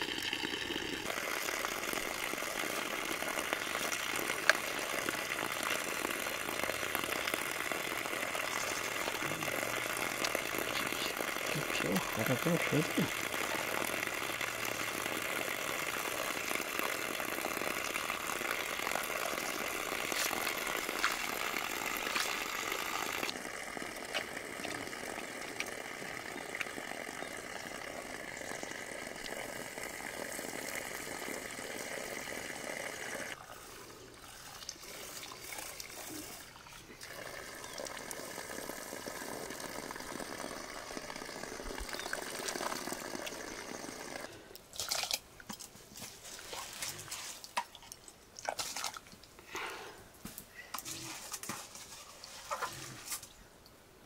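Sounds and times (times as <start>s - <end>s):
running water rushing and splashing: 1.0s - 33.4s.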